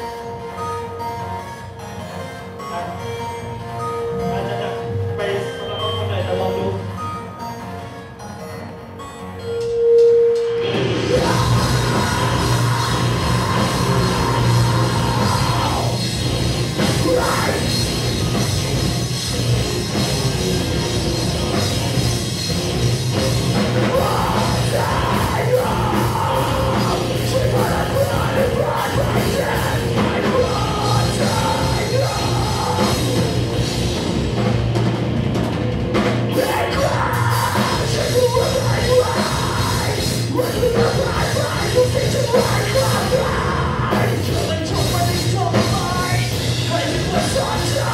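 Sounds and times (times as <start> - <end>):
electric guitars: 0.0 - 47.9
keyboard: 0.0 - 47.9
drum kit: 9.5 - 47.9
vocalist singing into microphone: 11.1 - 16.0, 16.9 - 17.8, 23.9 - 33.3, 36.3 - 47.9.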